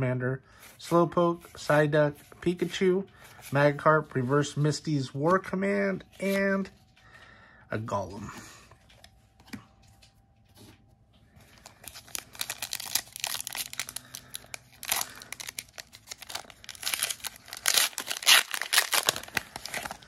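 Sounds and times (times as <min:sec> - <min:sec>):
foil wrapper crinkling and tearing: 0:11.4 - 0:20.0.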